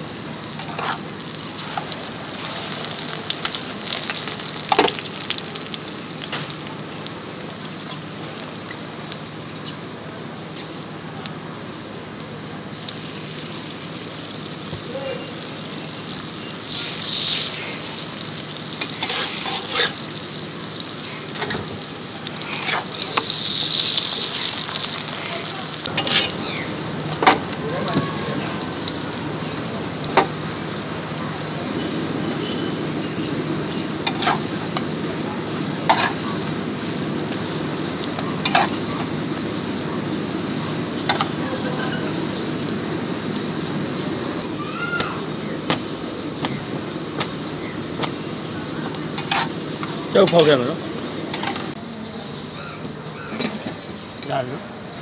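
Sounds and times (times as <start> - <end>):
flatbread sizzling in oil: 0.0 - 51.8
metal spatula scraping griddle: 0.6 - 1.1, 18.8 - 20.0, 22.4 - 23.4, 25.9 - 26.4, 34.0 - 34.5, 35.9 - 36.2, 49.2 - 49.6.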